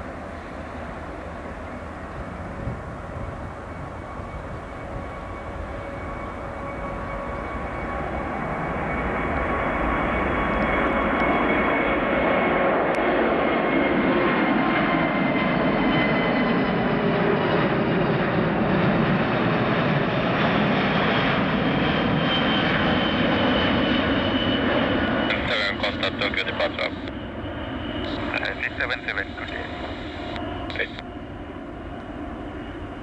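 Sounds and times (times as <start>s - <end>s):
jet airliner roar: 0.0s - 33.0s.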